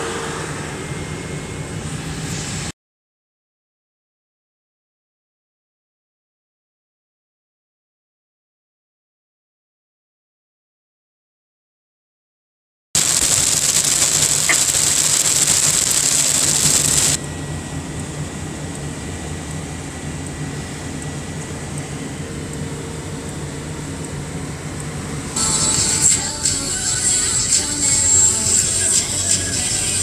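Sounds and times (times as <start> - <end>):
rain and wet tyres hissing: 13.0 - 17.2.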